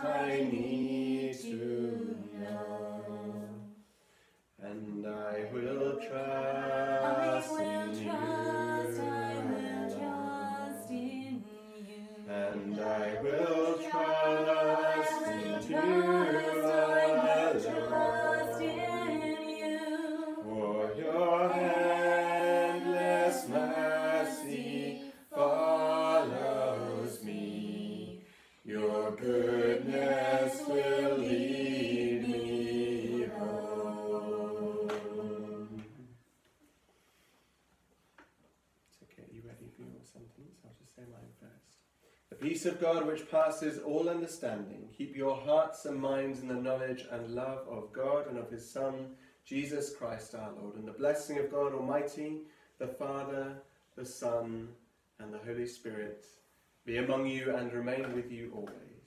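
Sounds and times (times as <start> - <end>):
group of voices singing: 0.0 - 3.8, 4.6 - 36.2.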